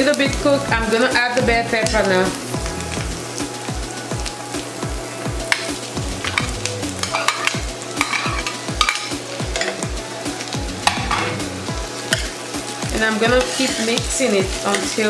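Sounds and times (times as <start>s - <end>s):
background music beat: 0.0s - 15.0s
vegetables sizzling in a frying pan: 0.0s - 15.0s
metal spoon scraping a pan: 5.5s - 9.8s, 10.8s - 11.5s, 13.1s - 15.0s.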